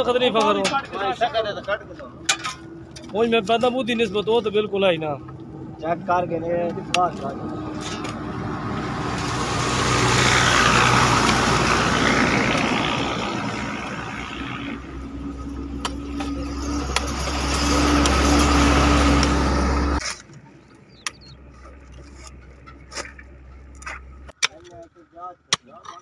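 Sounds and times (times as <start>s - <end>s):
spades striking gravelly ground: 0.1s - 4.6s, 6.8s - 8.3s, 15.5s - 26.0s
vehicle engine running: 2.0s - 24.3s.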